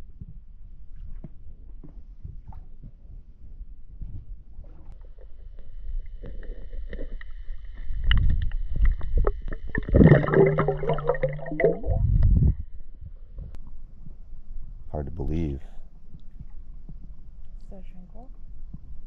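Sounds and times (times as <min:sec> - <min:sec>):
low hum: 0:03.1 - 0:19.0
water sloshing and splashing: 0:04.6 - 0:12.6.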